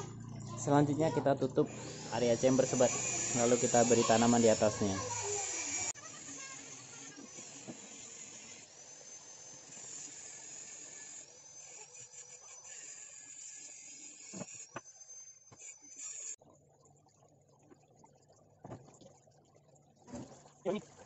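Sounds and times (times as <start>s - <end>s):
high wavering whine: 0.0s - 12.6s.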